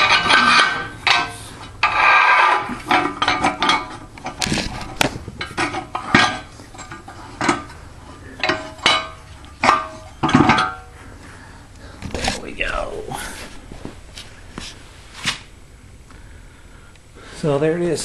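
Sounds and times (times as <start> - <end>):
metal pipes knocking on steel: 8.4 - 11.0.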